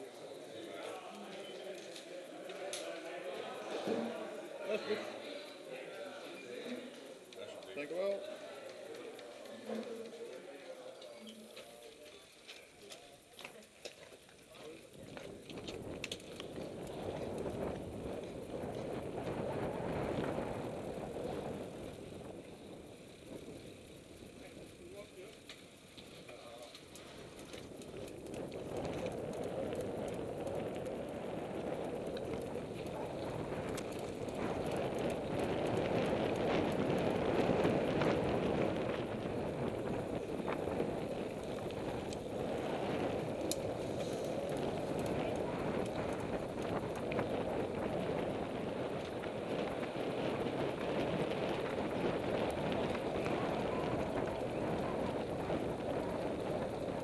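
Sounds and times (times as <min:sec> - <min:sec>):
bike clicks and rattles: 0:00.0 - 0:57.0
tyres rolling over dirt: 0:08.3 - 0:57.0
wind on microphone: 0:15.0 - 0:24.7, 0:27.0 - 0:57.0.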